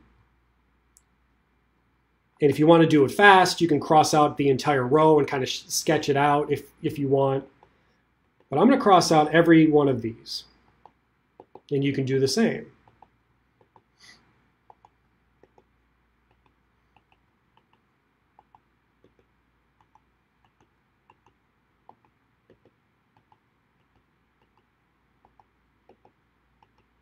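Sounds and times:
faint small clicks and taps: 0:10.8 - 0:11.7, 0:12.8 - 0:13.9, 0:14.7 - 0:15.7, 0:16.3 - 0:27.0.

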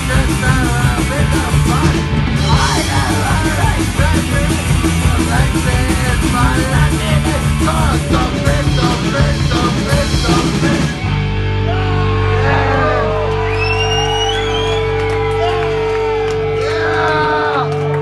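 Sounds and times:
punk rock band playing: 0:00.0 - 0:18.0
people yelling and whooping: 0:11.6 - 0:18.0.

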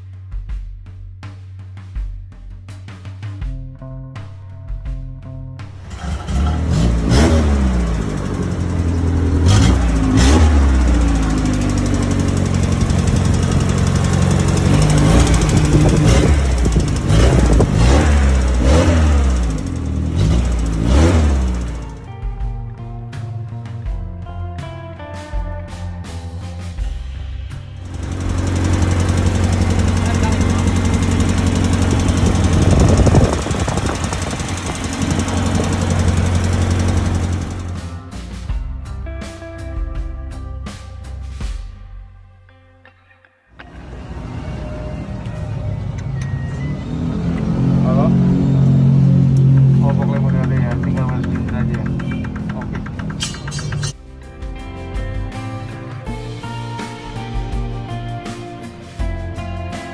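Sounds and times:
car engine revving: 0:05.6 - 0:24.0, 0:26.0 - 0:38.6, 0:43.6 - 0:59.9
car engine idling: 0:05.6 - 0:24.4, 0:26.8 - 0:39.4, 0:43.6 - 0:59.9
rapid mechanical ticking: 0:07.9 - 0:21.9, 0:27.8 - 0:37.7, 0:49.6 - 0:54.0.

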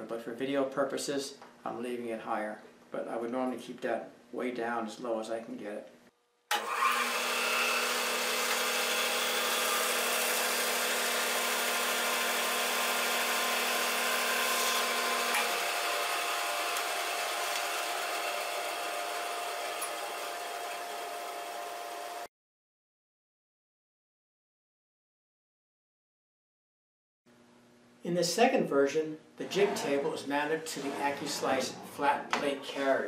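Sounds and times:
bandsaw cutting wood: 0:06.5 - 0:22.3, 0:29.4 - 0:32.9.

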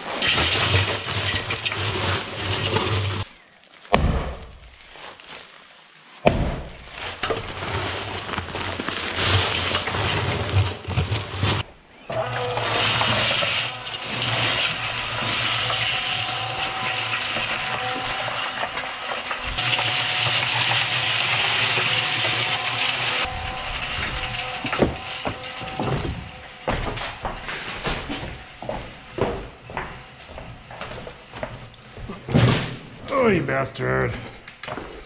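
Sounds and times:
cement mixer motor hum: 0:00.0 - 0:03.3, 0:07.2 - 0:32.4
hose spraying water: 0:12.4 - 0:26.6.

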